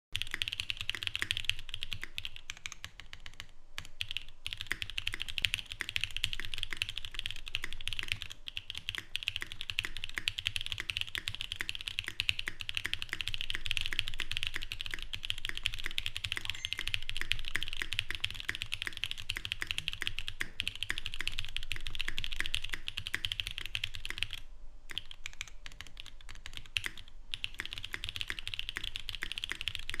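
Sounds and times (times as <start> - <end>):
fast mechanical keyboard typing: 0.2 - 30.0.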